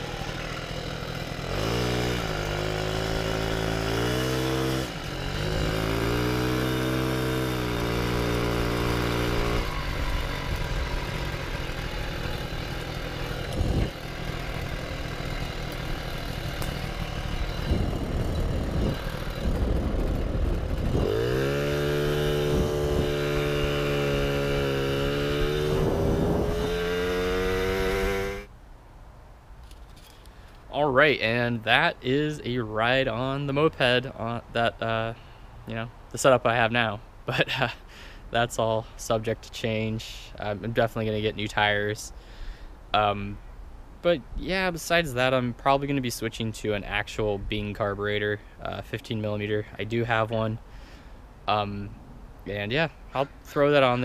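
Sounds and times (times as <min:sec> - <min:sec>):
moped engine revving: 0:00.0 - 0:28.5
rough noise: 0:00.0 - 0:28.6.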